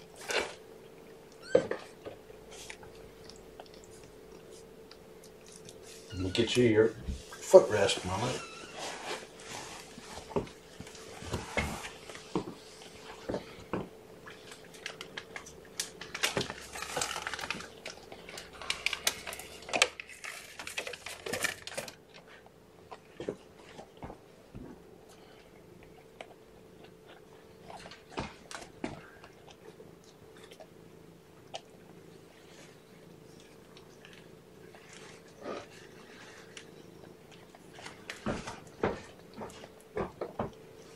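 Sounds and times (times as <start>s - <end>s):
faint steady hum: 0.0s - 40.9s
kittens nursing: 0.0s - 40.9s
rustling: 1.8s - 13.7s.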